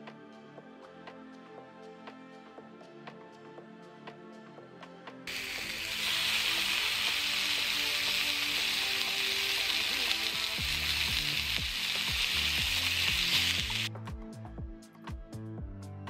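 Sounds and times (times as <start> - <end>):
bacon sizzling in a skillet: 5.3 - 13.9.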